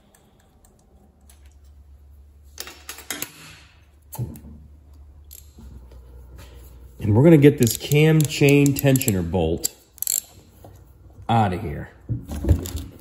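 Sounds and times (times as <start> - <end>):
wrench clicking on bolts: 5.2 - 5.6, 7.5 - 10.4.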